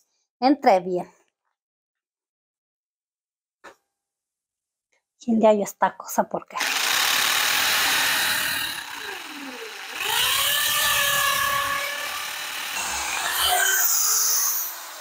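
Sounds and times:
electric drill boring into wood: 6.6s - 15.0s.

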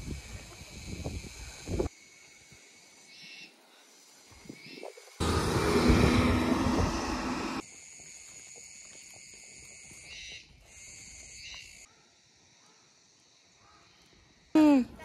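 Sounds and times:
small truck driving past: 5.2s - 7.6s.

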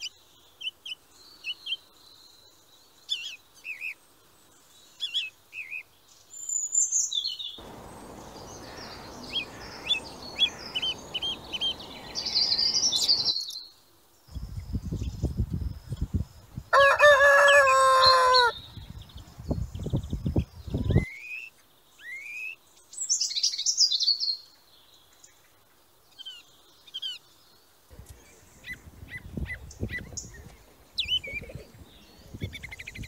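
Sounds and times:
low rumbling noise: 7.6s - 13.3s
rooster crowing: 16.7s - 18.6s.

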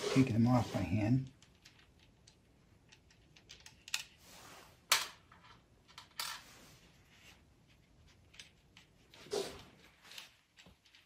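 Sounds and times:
small metallic clicks and scrapes: 1.3s - 4.3s.

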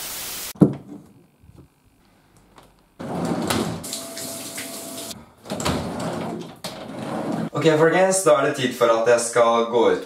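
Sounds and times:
static hiss: 0.0s - 0.6s
shower water spraying: 3.8s - 5.2s.

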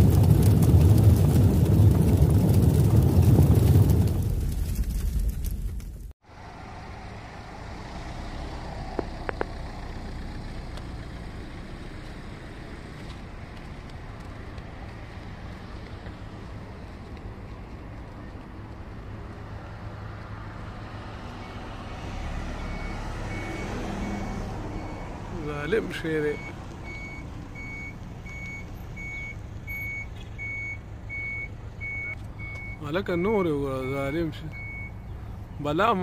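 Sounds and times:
distant road traffic rumble: 0.0s - 36.0s
faint repeating beeps: 26.3s - 35.0s.

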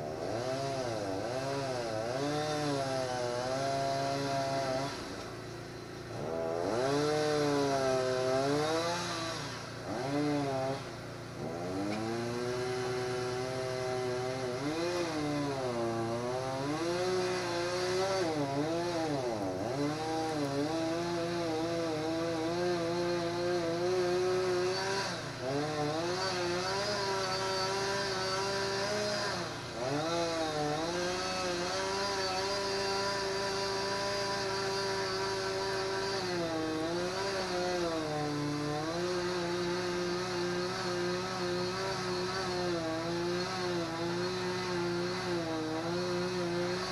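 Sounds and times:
small engine running: 0.0s - 46.9s.

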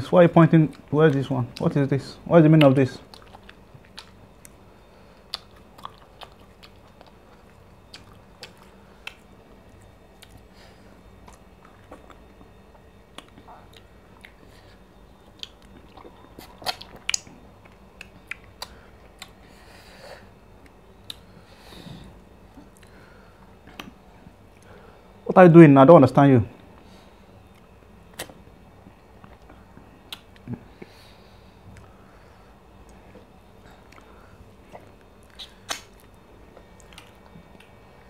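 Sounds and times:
wet chewing smacks: 2.6s - 4.6s, 5.2s - 10.5s, 11.2s - 14.6s, 15.3s - 19.4s, 27.5s - 28.4s, 29.2s - 30.9s, 32.8s - 37.8s
fingers tearing sticky food: 35.3s - 36.2s.

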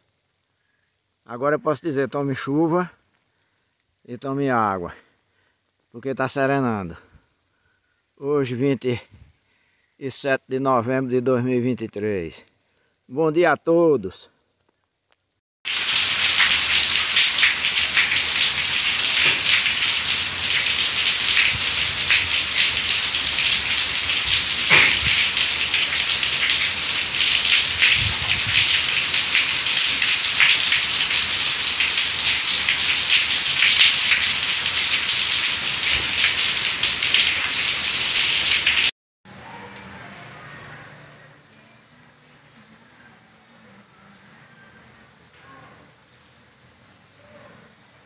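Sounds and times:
heavy rain falling: 15.7s - 38.9s.

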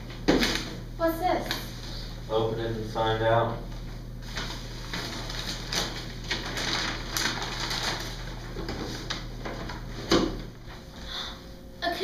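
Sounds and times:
steady low hum: 0.0s - 12.0s
wrapping paper crinkling and tearing: 4.2s - 10.0s.

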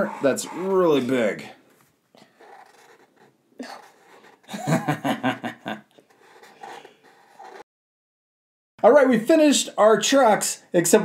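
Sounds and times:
person chuckling softly: 3.6s - 6.0s.

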